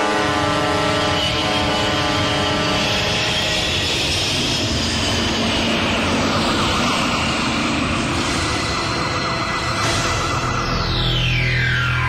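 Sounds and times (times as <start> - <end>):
goal horn: 0.0 - 3.9.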